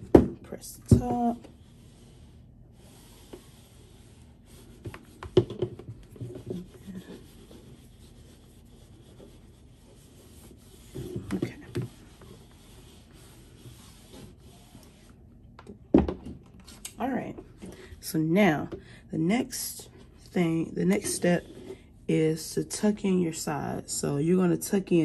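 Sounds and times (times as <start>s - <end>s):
heat press rubbing on fabric: 0.5s - 15.2s.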